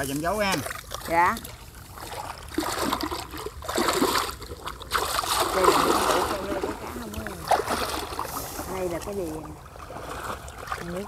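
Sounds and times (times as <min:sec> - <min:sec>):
muddy water splashing: 0:00.0 - 0:11.0.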